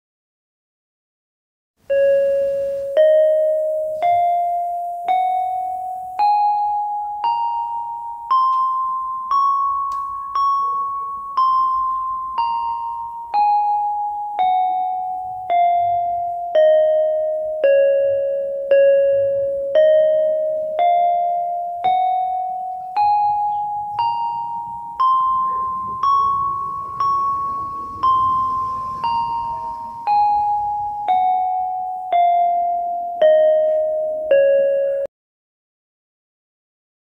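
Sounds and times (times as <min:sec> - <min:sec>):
electronic keyboard playing a scale: 0:01.9 - 0:35.1.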